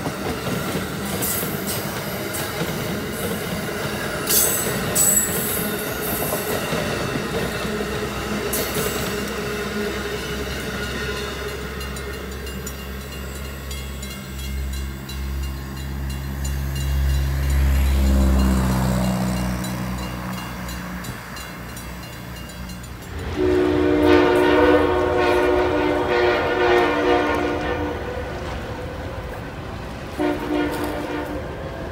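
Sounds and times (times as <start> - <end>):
low train rumble: 0.0 - 31.9
train wheels on rails: 0.0 - 31.9
locomotive horn blasts: 23.2 - 28.8, 30.1 - 31.6.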